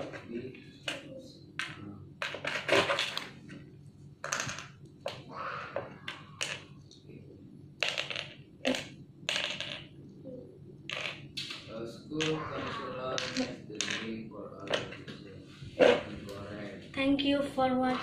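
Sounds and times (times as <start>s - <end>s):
playing pieces clicking into board: 7.8s - 9.9s, 10.9s - 11.6s.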